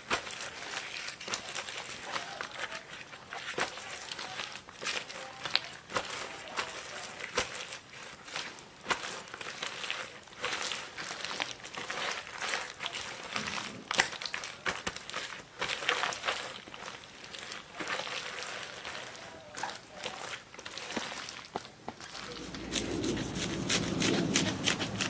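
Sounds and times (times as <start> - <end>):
wet squishing and crinkling leaves: 0.0 - 25.0.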